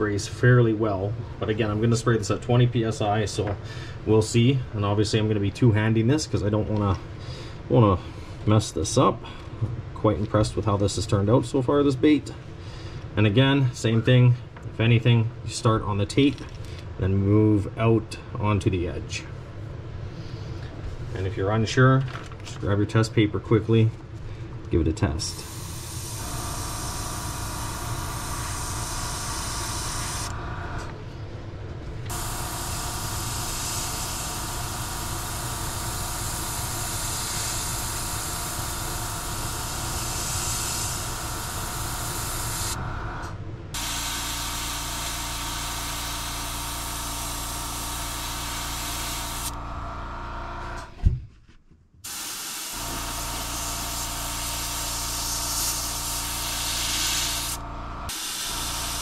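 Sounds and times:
air compressor hum: 23.7s - 51.1s, 52.0s - 59.0s
airbrush spraying hiss: 25.3s - 30.3s, 32.1s - 42.8s, 47.0s - 49.5s, 52.1s - 59.0s.

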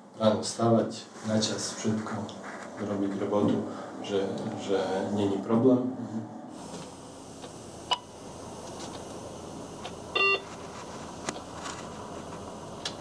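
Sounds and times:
low cabin noise: 1.3s - 13.0s
short electronic beep: 10.2s - 10.4s.

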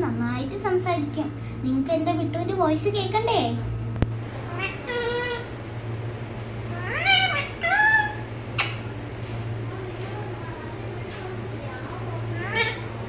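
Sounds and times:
steady low hum: 0.0s - 13.0s
parakeet calls: 4.3s - 5.6s, 6.6s - 9.1s, 12.2s - 13.0s.

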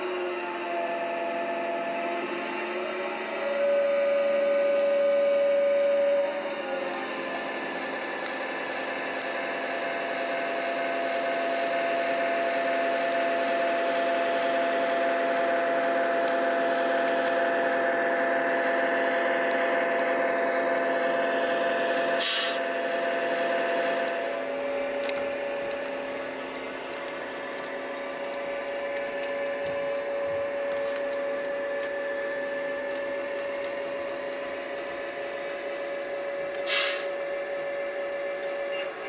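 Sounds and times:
model locomotive motor humming: 0.0s - 39.0s
short hiss: 22.2s - 22.6s, 36.6s - 37.1s
wheels clicking over track joints: 24.0s - 35.9s.

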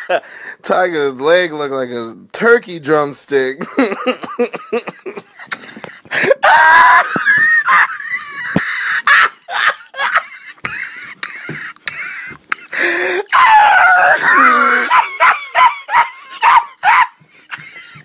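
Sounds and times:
high-pitched wheezing laughter: 14.0s - 18.0s.

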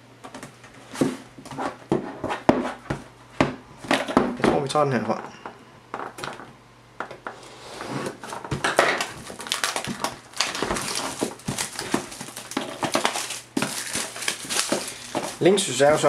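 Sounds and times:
plastic film crinkling: 8.2s - 16.0s
scissors cutting plastic wrap: 8.7s - 15.5s.

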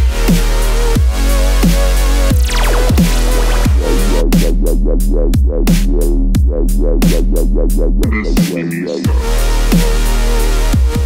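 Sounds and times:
electronic dance music: 2.4s - 4.6s, 8.1s - 9.4s.

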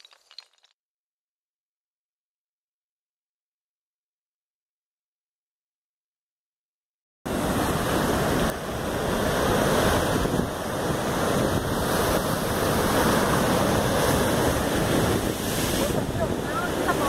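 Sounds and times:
wind buffeting microphone: 7.9s - 17.0s.

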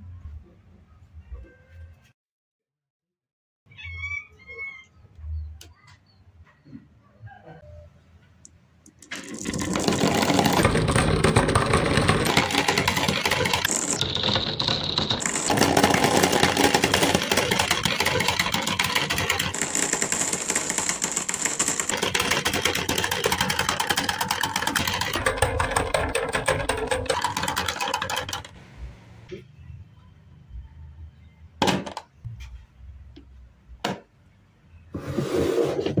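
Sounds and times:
marbles rattling down wooden tracks: 9.0s - 28.5s.

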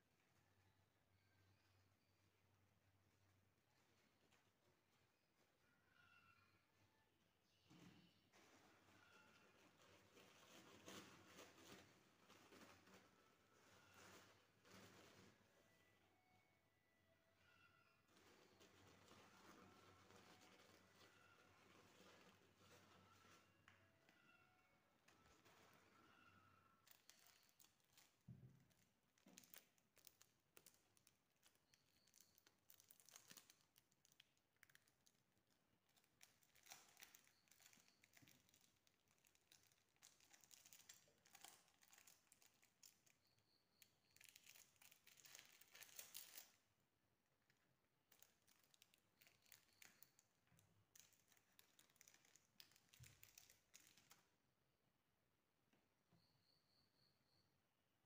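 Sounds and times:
tissue paper crinkling: 8.3s - 15.7s, 18.1s - 23.8s, 25.0s - 43.2s, 44.1s - 46.6s, 48.0s - 54.2s.

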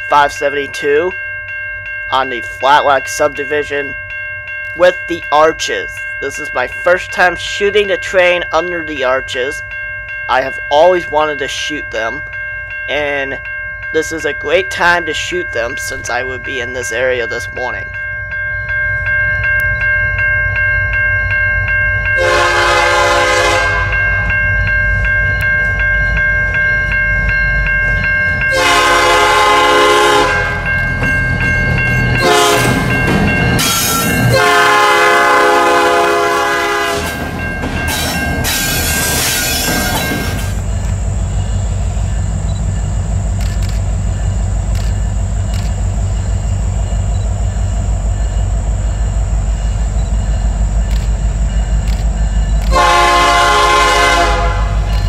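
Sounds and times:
diesel locomotives rumbling: 0.0s - 55.0s
train air horn blasts: 22.2s - 24.0s, 28.5s - 30.7s, 32.2s - 32.8s, 34.3s - 37.2s, 52.7s - 54.9s.

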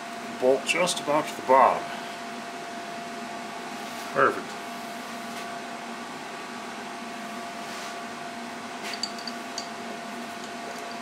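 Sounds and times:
electric hum of machinery: 0.0s - 11.0s
light metallic clinks: 8.9s - 9.8s.

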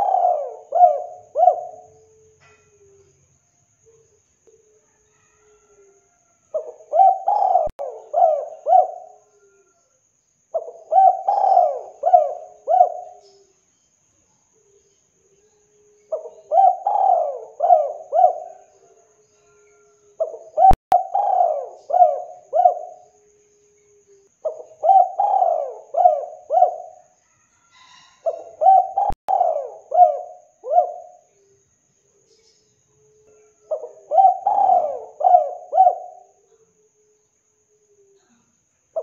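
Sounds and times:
dove cooing: 0.0s - 3.1s, 4.7s - 9.8s, 10.5s - 13.5s, 15.8s - 27.1s, 27.7s - 31.5s, 33.0s - 37.2s.

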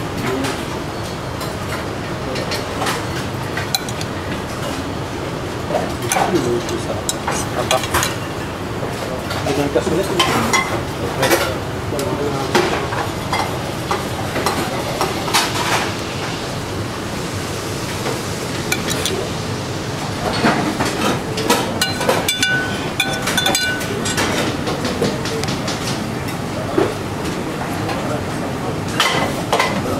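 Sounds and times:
steady kitchen background noise: 0.0s - 29.9s
utensils and plates clinking: 0.3s - 4.8s, 5.7s - 8.4s, 9.2s - 11.6s, 18.7s - 19.3s, 20.2s - 27.0s, 28.9s - 29.9s.

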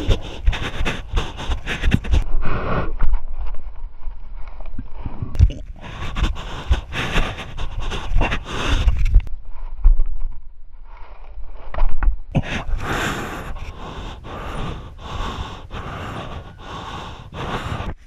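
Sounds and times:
bumps on camera microphone: 0.0s - 2.2s
man panting hard: 0.0s - 2.8s, 5.7s - 9.3s, 12.4s - 18.0s.

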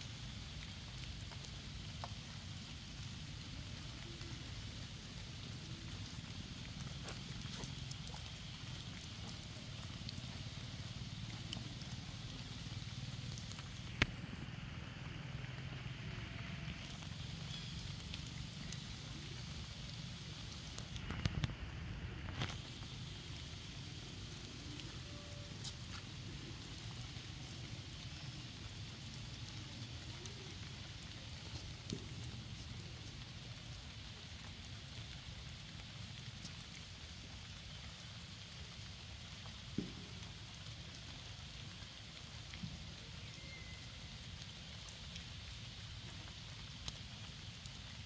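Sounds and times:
low outdoor rumble: 0.0s - 41.3s
rain falling on water: 0.0s - 48.0s
faint ticks: 5.4s - 14.2s, 46.0s - 47.8s.

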